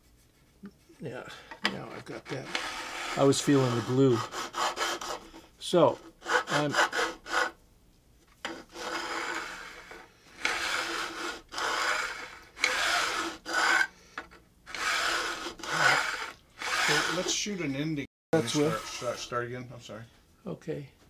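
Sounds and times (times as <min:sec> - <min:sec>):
file rasping over metal frets: 0:01.8 - 0:07.6, 0:08.4 - 0:14.0, 0:14.7 - 0:17.6, 0:18.4 - 0:19.3.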